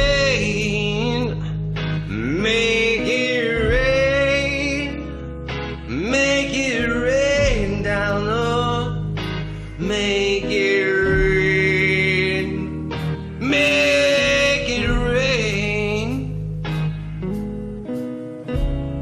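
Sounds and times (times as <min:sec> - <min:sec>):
man singing long notes: 0:00.0 - 0:05.2, 0:05.9 - 0:09.1, 0:09.8 - 0:12.8, 0:13.4 - 0:16.4
band with guitar: 0:00.0 - 0:19.0.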